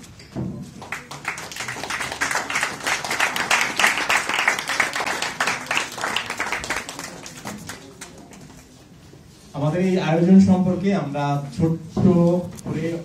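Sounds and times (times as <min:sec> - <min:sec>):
crowd applause: 0:00.9 - 0:08.2.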